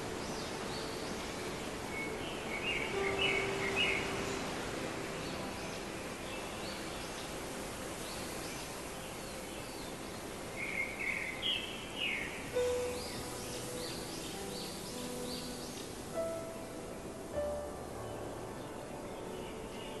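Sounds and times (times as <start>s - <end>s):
small birds chirping: 0.0s - 20.0s
steady outdoor hiss: 0.0s - 20.0s.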